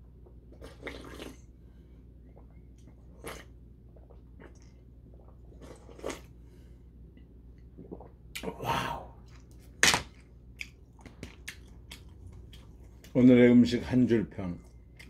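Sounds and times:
slurping sauce from a bowl: 0:00.6 - 0:01.4.

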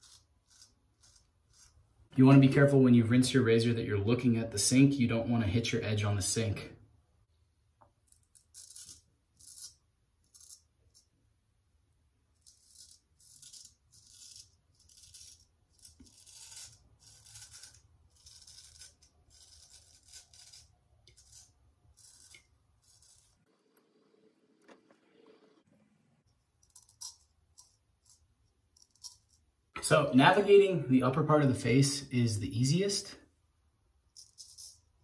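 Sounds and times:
straight razor scraping stubble: 0:00.0 - 0:01.9, 0:08.1 - 0:11.1, 0:12.3 - 0:23.5.

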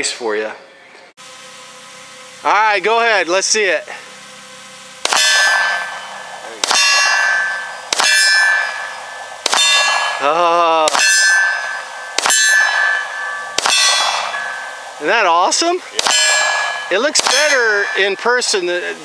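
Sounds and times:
handgun shots: 0:05.0 - 0:05.6, 0:06.6 - 0:08.6, 0:09.4 - 0:09.9, 0:12.2 - 0:12.4, 0:13.6 - 0:14.3, 0:16.0 - 0:18.1
metallic clang of steel target: 0:05.0 - 0:18.9.

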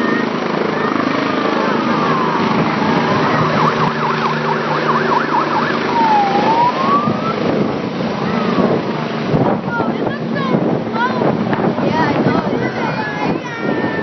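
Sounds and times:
helicopter rotor and engine: 0:00.0 - 0:14.0
high warbling tone: 0:00.2 - 0:07.7.

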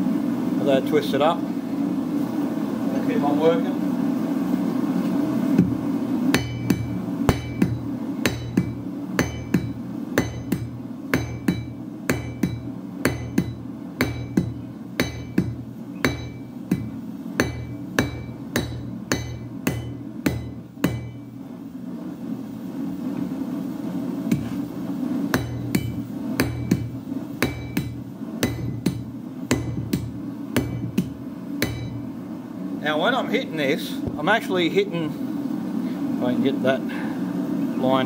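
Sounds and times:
hammer striking metal on anvil: 0:05.6 - 0:21.4, 0:24.3 - 0:24.7, 0:25.3 - 0:32.2.

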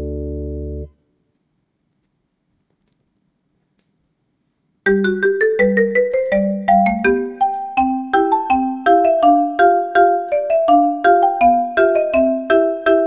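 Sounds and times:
melody of short struck notes: 0:04.9 - 0:13.0.

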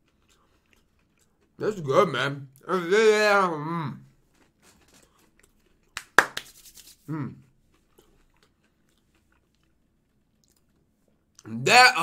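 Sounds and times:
paper rustling and tearing: 0:06.3 - 0:07.1
man humming: 0:07.1 - 0:07.4.

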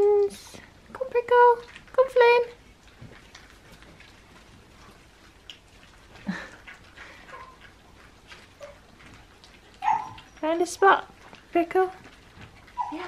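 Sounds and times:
puppies lapping food: 0:00.0 - 0:13.0
puppies squeaking and whimpering: 0:06.7 - 0:10.6, 0:12.4 - 0:13.0.

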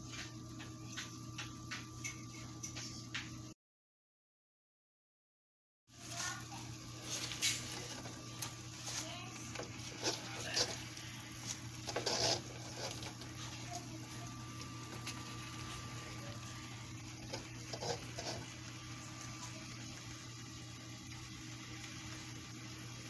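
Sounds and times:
leaves rustling into metal pot: 0:05.9 - 0:19.6
steady low hum: 0:06.0 - 0:23.0.

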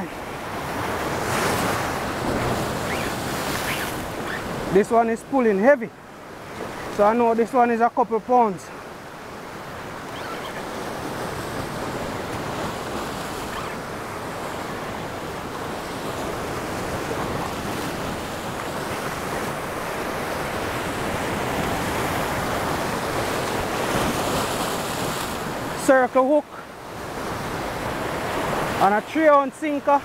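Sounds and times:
surf breaking over rocks: 0:00.8 - 0:05.0.

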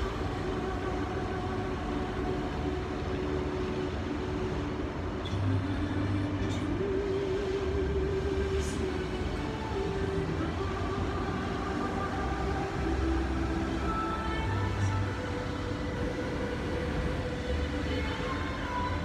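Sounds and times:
music over outdoor loudspeakers: 0:00.0 - 0:19.0.

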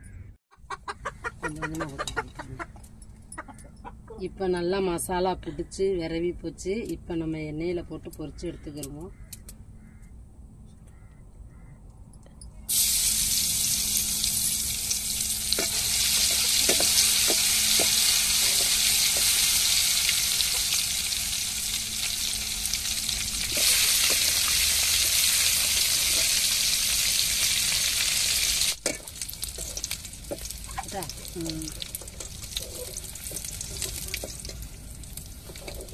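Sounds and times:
food deep-frying in hot oil: 0:12.7 - 0:35.9
oil popping: 0:12.7 - 0:35.9.

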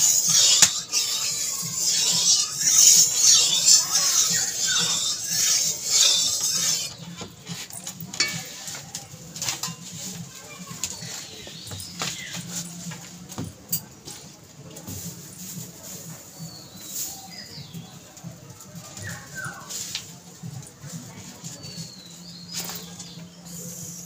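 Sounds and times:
hot oil hissing and crackling: 0:00.0 - 0:12.4.

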